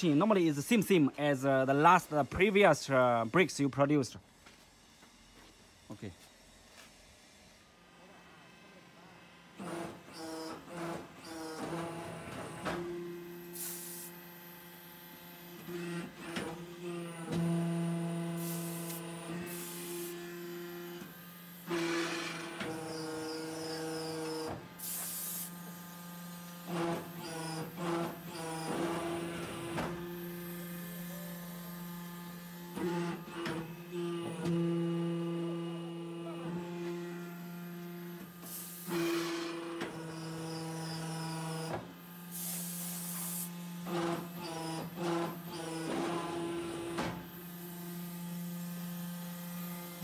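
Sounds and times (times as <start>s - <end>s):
hydraulic power unit humming: 9.6s - 50.0s
hydraulic hiss: 13.4s - 14.2s, 18.2s - 20.2s, 21.0s - 26.0s, 38.2s - 43.6s
hissing bursts: 24.8s - 25.8s, 42.3s - 43.5s.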